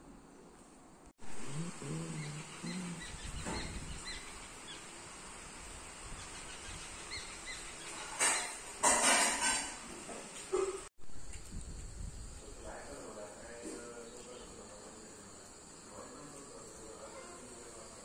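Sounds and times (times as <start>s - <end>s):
low voice-like sound: 1.2s - 3.3s
steady hiss: 1.2s - 10.5s, 11.1s - 18.0s
bird chirps: 1.5s - 4.8s.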